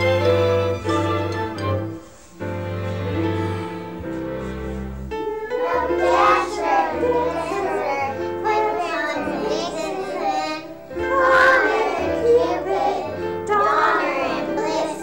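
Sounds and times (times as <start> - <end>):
instrumental backing music: 0.0 - 15.0
young children singing: 5.2 - 15.0.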